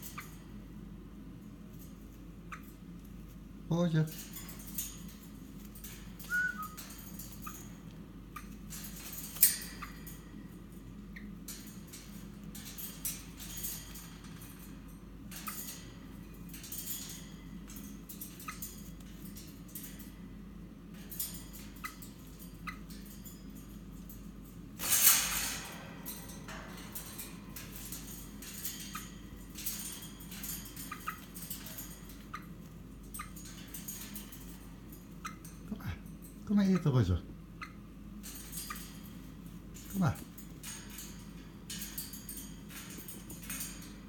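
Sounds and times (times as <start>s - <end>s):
claws and beak on cage wire: 0.0s - 44.0s
short whistled notes: 6.3s - 6.8s.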